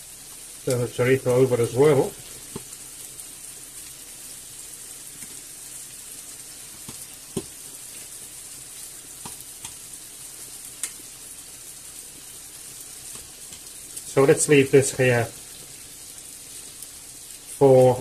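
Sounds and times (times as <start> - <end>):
meat sizzling in a frying pan: 0.0 - 18.0.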